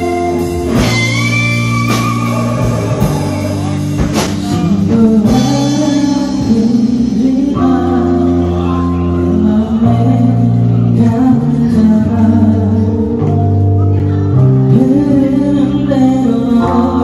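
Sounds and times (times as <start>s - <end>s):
man singing: 0.0s - 13.3s
bass and drums: 0.0s - 17.0s
electric guitar bending notes: 0.0s - 17.0s.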